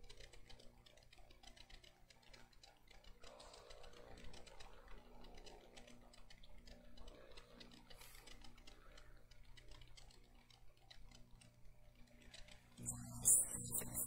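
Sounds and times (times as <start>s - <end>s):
low steady hum: 3.2s - 14.0s.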